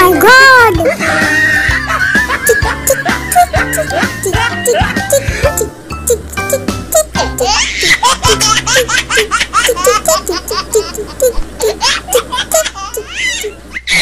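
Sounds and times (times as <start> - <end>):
background music: 0.0 - 10.9
baby giggling: 0.6 - 14.0.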